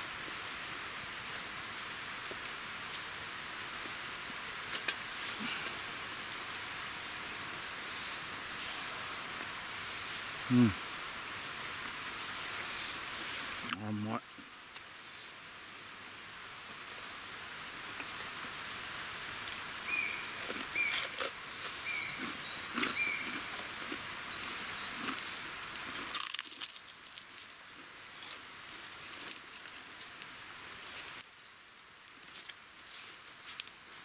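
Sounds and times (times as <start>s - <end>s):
crunchy chewing of bread: 19.4s - 31.6s
bird chirping: 19.9s - 23.5s.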